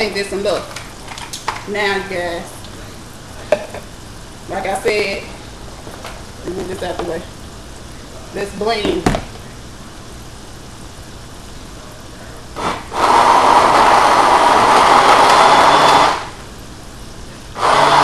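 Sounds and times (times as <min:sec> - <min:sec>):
countertop blender running: 0:12.6 - 0:16.4, 0:17.5 - 0:18.0.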